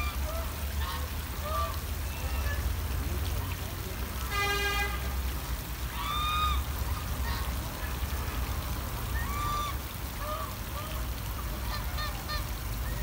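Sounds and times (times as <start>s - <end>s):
geese honking: 0.0s - 1.8s, 9.2s - 12.5s.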